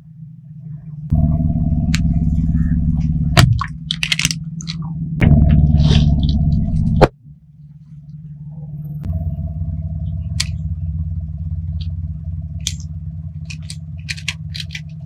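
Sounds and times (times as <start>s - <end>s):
car engine idling: 0.3s - 15.0s
plastic toy clicks: 13.5s - 14.9s.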